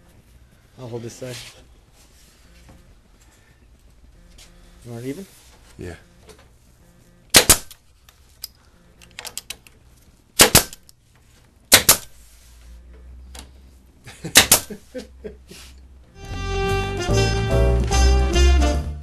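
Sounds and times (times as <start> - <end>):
nail gun snapping: 7.3 - 7.8, 10.4 - 10.9, 11.7 - 12.2, 14.4 - 14.7.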